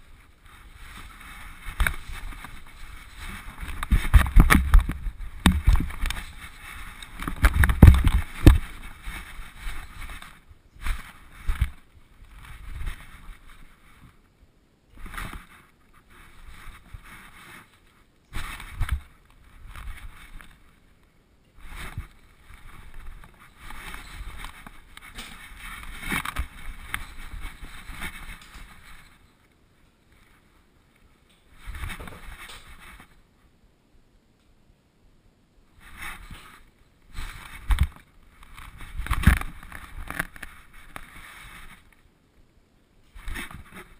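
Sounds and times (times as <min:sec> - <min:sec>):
camera housing rustling and scraping: 0:00.9 - 0:11.8, 0:37.2 - 0:41.8.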